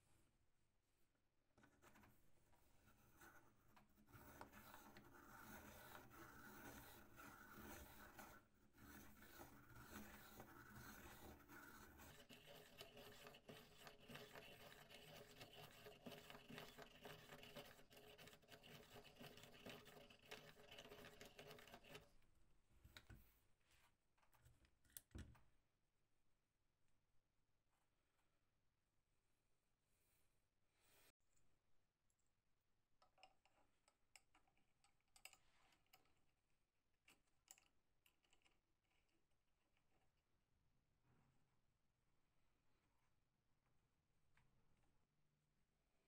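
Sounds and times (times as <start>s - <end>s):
pencil sharpener grinding: 3.2s - 22.0s.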